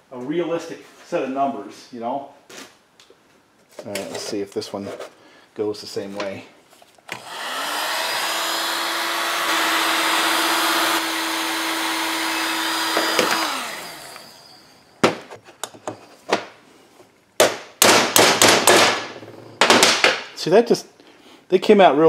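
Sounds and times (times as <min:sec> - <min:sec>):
heat gun running: 0:07.1 - 0:14.9
fan winding down: 0:07.2 - 0:14.8.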